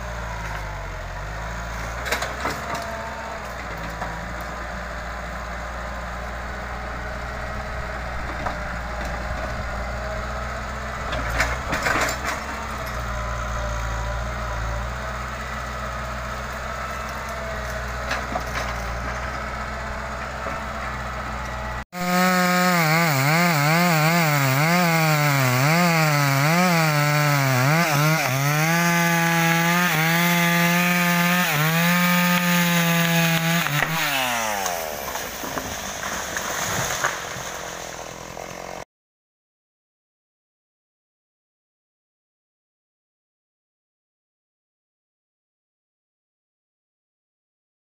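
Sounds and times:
excavator engine running: 0.0s - 22.2s, 37.0s - 38.8s
chainsaw running: 0.0s - 38.8s
wood cracking: 16.0s - 21.1s, 22.2s - 38.8s.

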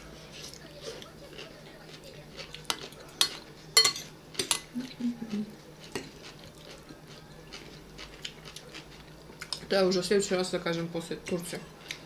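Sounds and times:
cutlery clinking on a plate: 2.6s - 4.7s.

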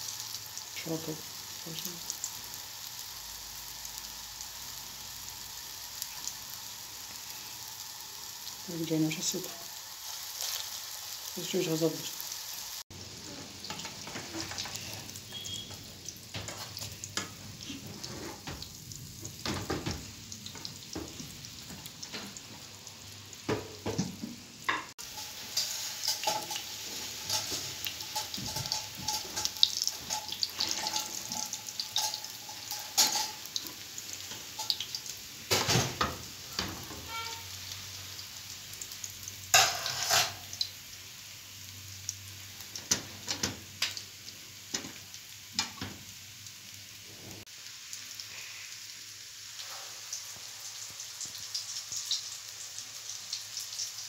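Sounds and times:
patties sizzling in oil: 0.0s - 54.0s
spatula scraping a pan: 25.0s - 33.5s, 39.5s - 40.5s.

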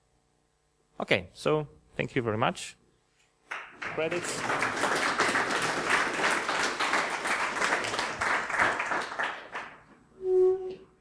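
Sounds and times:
audience applauding: 3.5s - 9.9s.

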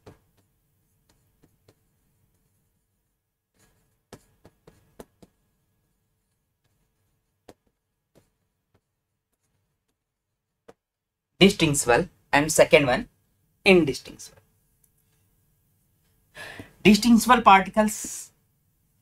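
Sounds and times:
stylus tapping on screen: 4.0s - 5.4s, 7.4s - 8.9s, 10.6s - 10.9s.

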